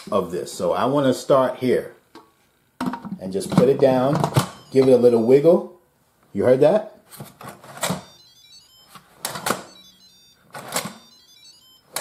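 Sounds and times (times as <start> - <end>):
electronic jingle of high tones: 4.4 - 5.4, 7.9 - 12.0.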